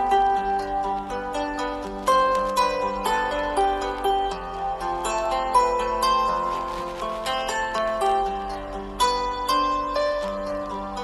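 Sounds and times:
plucked string melody: 0:00.0 - 0:11.0.

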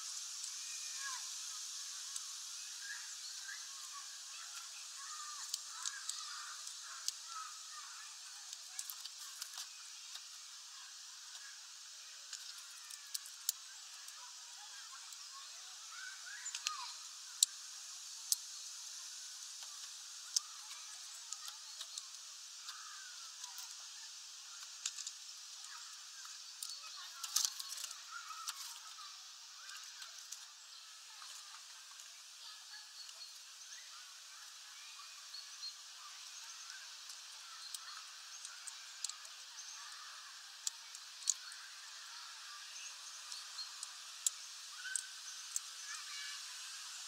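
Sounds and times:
bird cracking seeds: 0:24.6 - 0:25.2, 0:26.2 - 0:28.8.

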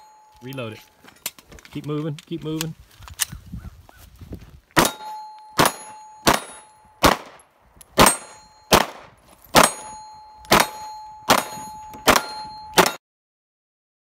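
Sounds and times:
ringing of steel targets: 0:00.0 - 0:01.3, 0:04.8 - 0:13.0
pistol shots: 0:04.8 - 0:13.0.

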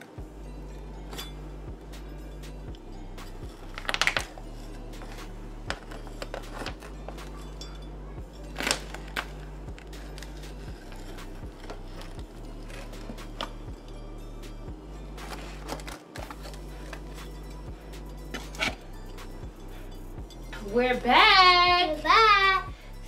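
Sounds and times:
steady low hum: 0:00.0 - 0:23.0
pizza cutter slicing cookie bars: 0:03.8 - 0:07.4
foil pan scraping and crinkling: 0:15.2 - 0:17.0.

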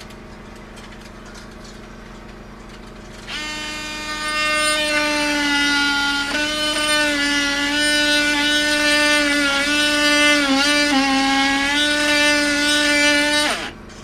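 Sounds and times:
power drill whining: 0:03.2 - 0:13.8.

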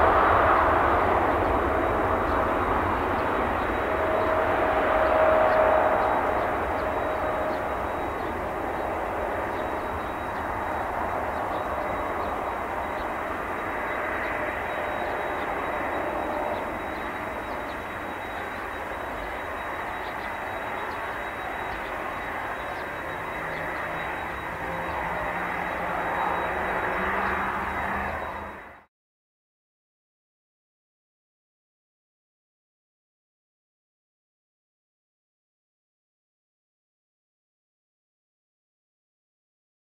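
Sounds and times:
jet engines roaring: 0:00.0 - 0:28.9.

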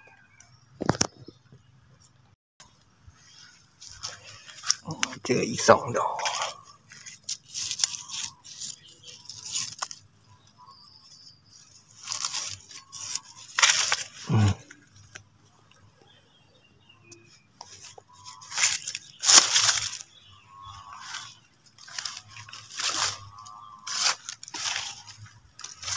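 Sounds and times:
plants brushing: 0:03.1 - 0:10.1, 0:11.0 - 0:15.2, 0:17.6 - 0:25.9
footsteps crunching on leaves: 0:03.2 - 0:10.1, 0:11.5 - 0:14.6, 0:17.6 - 0:25.9.

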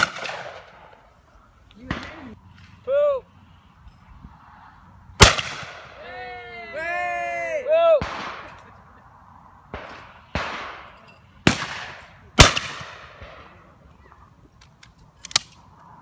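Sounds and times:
shotgun shots echoing: 0:00.0 - 0:00.9, 0:01.8 - 0:02.4, 0:05.2 - 0:06.0, 0:08.0 - 0:08.7, 0:09.7 - 0:13.6
metallic clicks of gun opening: 0:14.6 - 0:15.7.

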